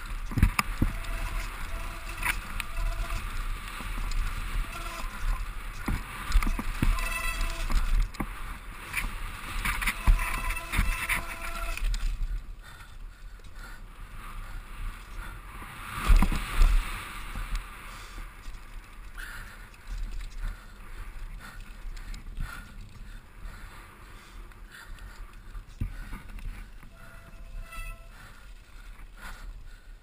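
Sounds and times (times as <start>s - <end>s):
tyres over dirt and rock: 0.0s - 12.5s
bike frame and chain rattling: 0.0s - 13.4s, 24.7s - 28.6s
wind rumble on microphone: 0.0s - 29.9s
brief squeal: 27.0s - 28.2s.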